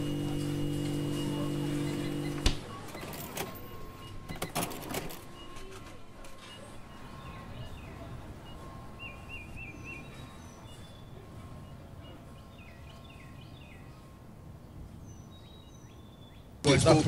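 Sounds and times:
small birds chirping and trilling: 6.5s - 16.6s.

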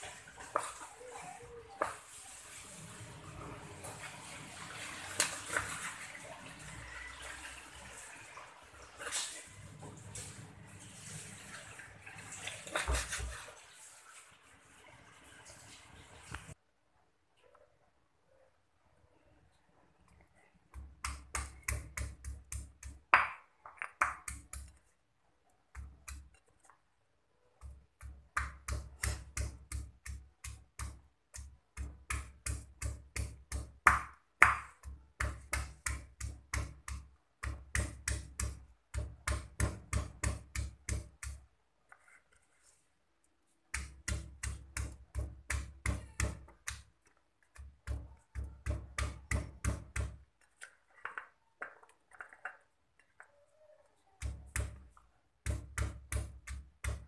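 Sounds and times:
pestle pounding in stone mortar: 20.8s - 24.8s, 27.6s - 41.4s, 43.7s - 46.9s, 47.6s - 50.2s, 55.4s - 57.0s.

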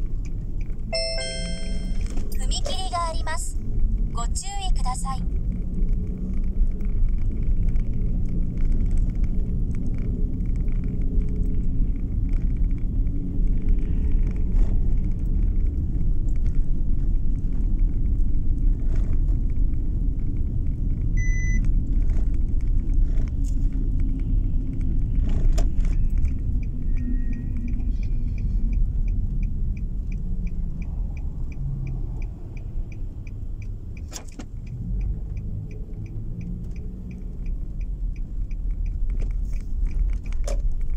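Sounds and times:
car engine and tyres rumbling: 0.0s - 40.9s
turn signal ticking: 0.0s - 40.9s.

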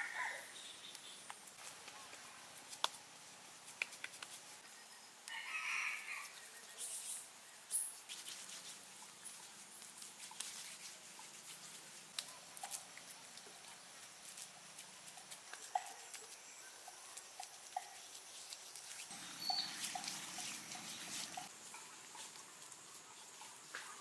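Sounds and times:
hands patting wet clay: 3.7s - 4.5s
bird calling: 19.1s - 21.5s
short high chirps: 19.4s - 20.1s.

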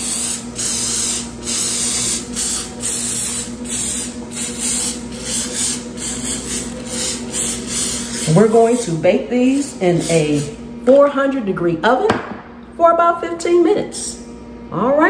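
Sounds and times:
cooking spray hissing: 0.0s - 10.6s.

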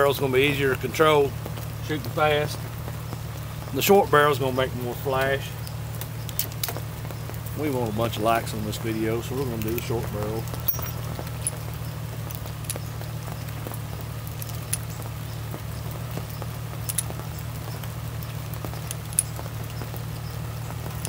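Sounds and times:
steady low hum: 0.0s - 21.0s
light metallic clicks: 9.5s - 13.8s, 16.2s - 20.0s.

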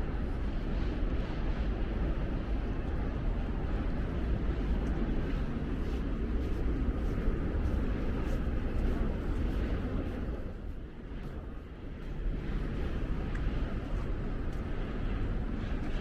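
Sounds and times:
distant city noise: 0.0s - 16.0s
wind buffeting microphone: 0.0s - 16.0s.

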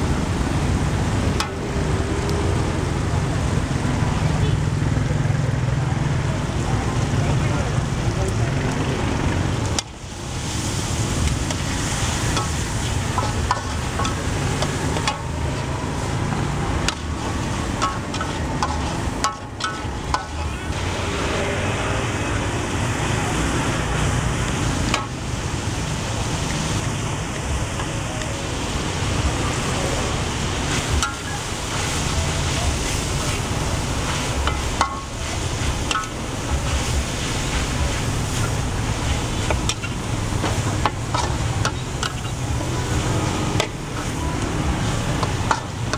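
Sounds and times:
stir-fry sizzling in a wok: 0.0s - 45.9s
metal spatula scraping: 11.5s - 21.4s.

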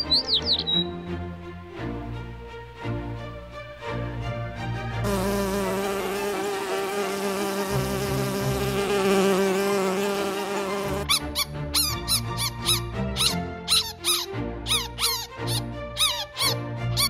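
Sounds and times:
bee buzzing: 5.0s - 11.2s.

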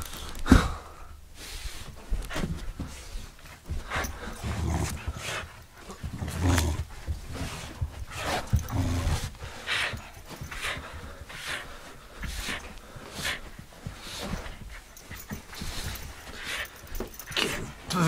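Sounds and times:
dog panting: 1.7s - 17.9s
dog low rumbles: 2.2s - 11.3s.

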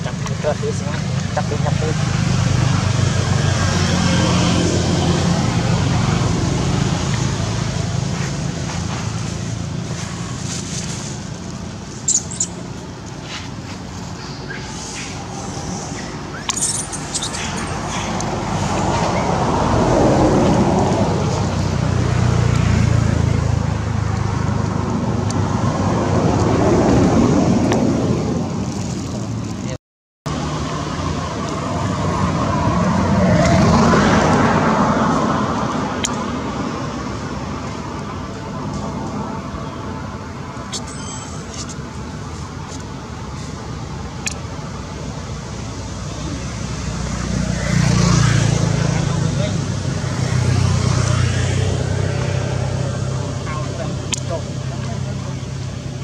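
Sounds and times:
passing vehicle engine rumble: 0.0s - 56.0s
baby monkey squealing: 12.0s - 12.6s, 14.4s - 18.2s.

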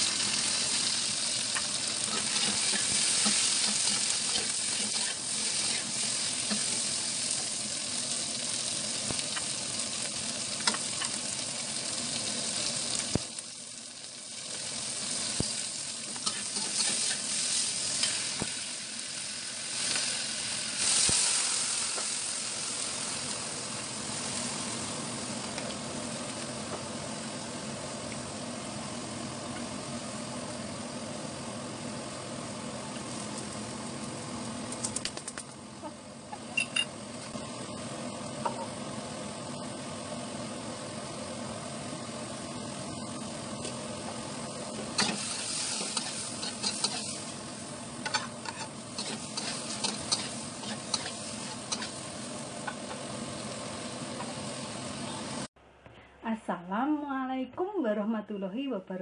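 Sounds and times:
food sizzling in a wok: 0.0s - 34.7s, 35.8s - 55.5s
metal spatula scraping a wok: 2.0s - 5.9s, 16.2s - 17.2s, 45.0s - 47.2s, 48.0s - 52.0s.

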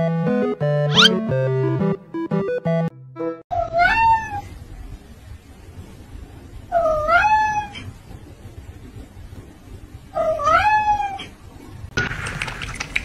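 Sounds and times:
cat meowing: 3.6s - 4.5s, 6.7s - 7.9s, 10.2s - 11.3s.

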